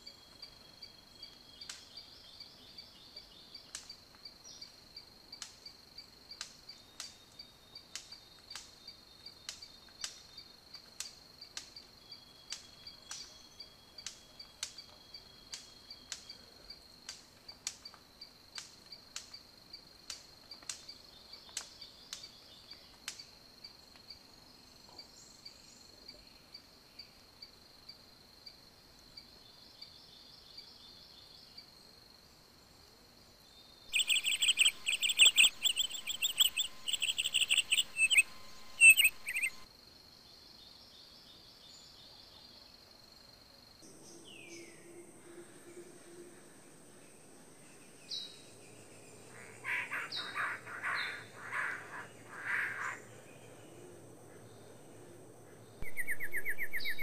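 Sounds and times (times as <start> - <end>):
bird sharp clicks: 33.9 - 39.6
harsh rasping bird calls: 33.9 - 39.6, 48.0 - 54.7
high insect buzz: 33.9 - 39.6.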